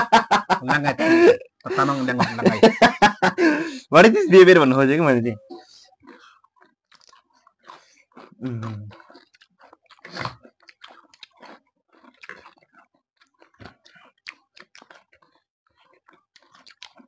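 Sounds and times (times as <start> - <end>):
chewing crunchy food: 5.4 - 17.0
wet mouth clicks and smacks: 6.0 - 17.0.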